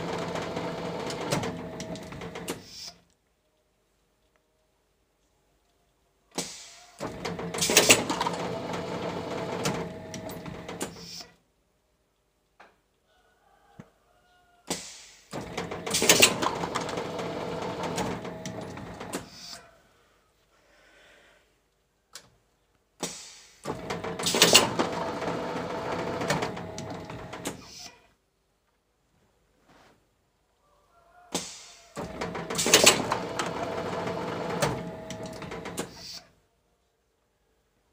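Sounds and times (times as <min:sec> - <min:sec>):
machine clatter and hiss: 0:06.4 - 0:08.4, 0:14.7 - 0:17.0, 0:23.0 - 0:27.8, 0:31.4 - 0:36.2.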